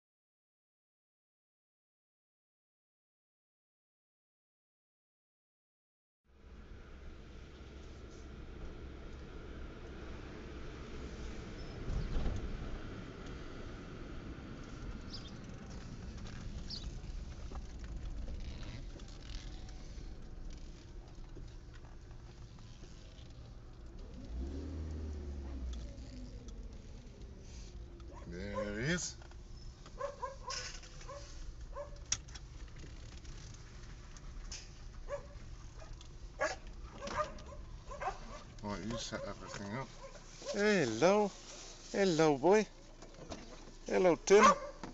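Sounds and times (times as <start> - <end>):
car engine and road noise: 6.3 - 44.9
dogs barking: 28.1 - 28.9, 29.9 - 32.1, 35.1 - 40.6, 44.3 - 44.9.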